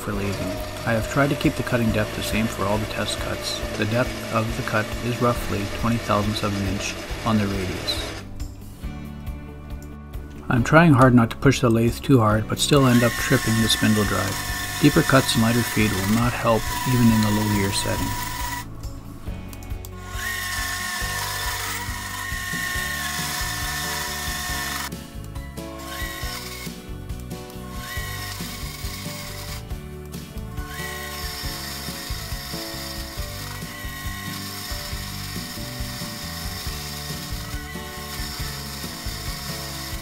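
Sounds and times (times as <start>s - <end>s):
metal lathe cutting steel: 0.0s - 8.2s, 12.6s - 18.7s, 20.0s - 24.9s, 27.7s - 29.6s, 30.6s - 40.0s
background music: 0.0s - 40.0s.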